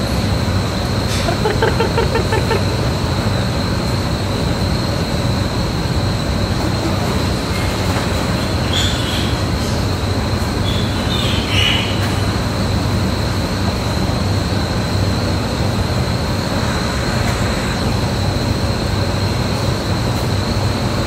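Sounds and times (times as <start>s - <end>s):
constant high whine: 0.0s - 21.0s
low hum: 13.4s - 20.0s.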